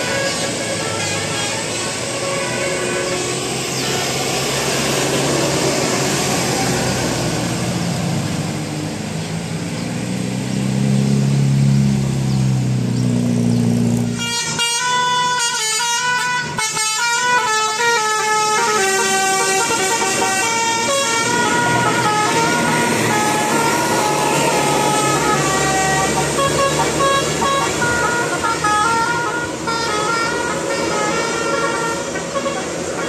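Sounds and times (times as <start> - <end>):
bus horn playing a tune: 0.0 - 6.6, 14.0 - 33.0
bus engine passing: 0.0 - 33.0.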